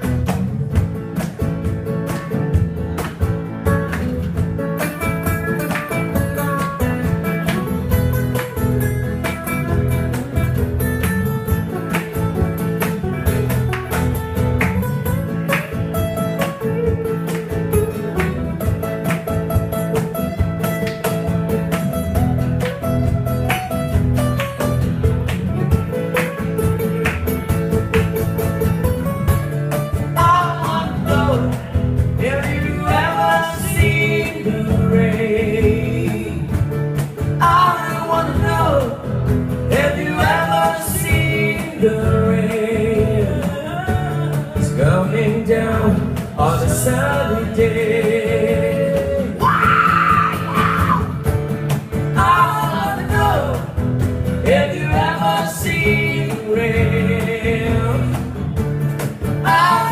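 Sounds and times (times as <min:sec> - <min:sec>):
acoustic guitars strummed: 0:00.0 - 0:59.9
person singing: 0:30.1 - 0:36.6, 0:37.4 - 0:39.1, 0:39.7 - 0:51.2, 0:52.2 - 0:53.8, 0:59.4 - 0:59.9.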